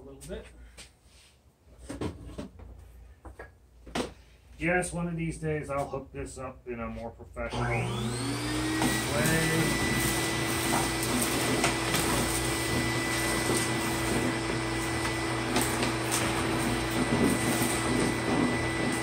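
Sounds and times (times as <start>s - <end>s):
shop vacuum running: 7.4s - 19.0s.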